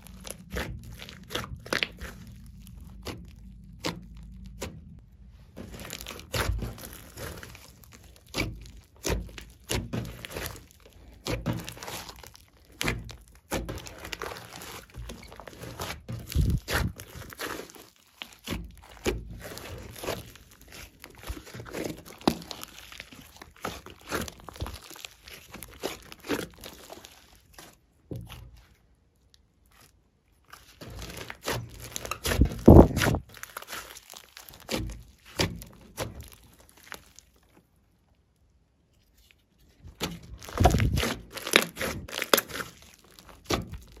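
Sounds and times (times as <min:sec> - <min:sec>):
hands squeezing sticky slime: 0:00.0 - 0:38.1, 0:38.8 - 0:44.0
crackles and pops of trapped air: 0:40.0 - 0:42.5.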